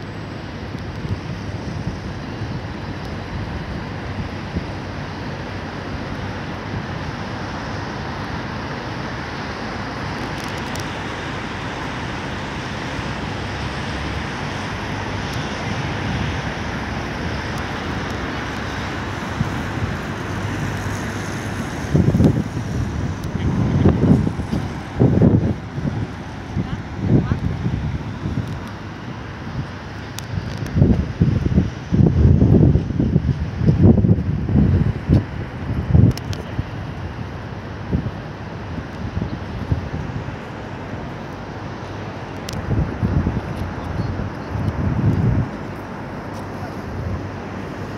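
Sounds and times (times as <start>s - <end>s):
distant road traffic hiss: 0.0s - 47.9s
wind rumble on microphone: 0.0s - 47.9s.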